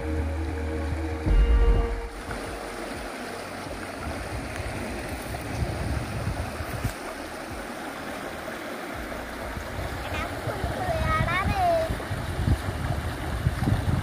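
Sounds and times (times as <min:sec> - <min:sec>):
low rumbles: 0:00.0 - 0:07.6
stream running over rocks: 0:00.0 - 0:14.0.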